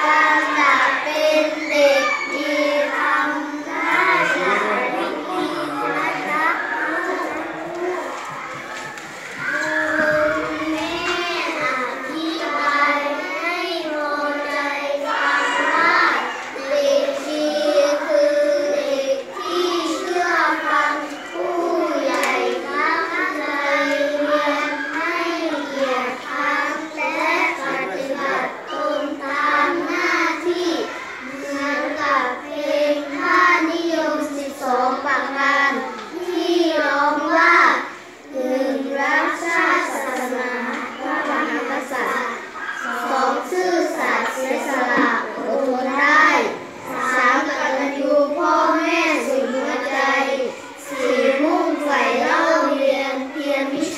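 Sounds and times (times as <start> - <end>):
children chanting in unison: 0.0 - 53.9.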